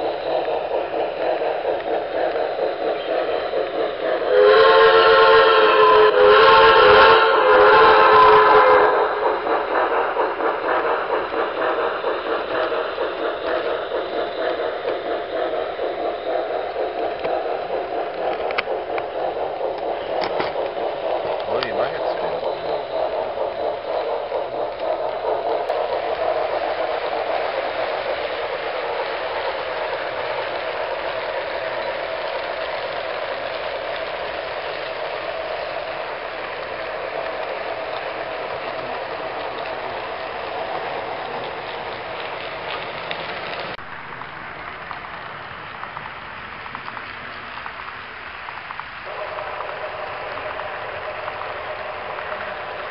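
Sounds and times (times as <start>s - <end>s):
model train wheels whirring and clicking: 0.0s - 52.9s.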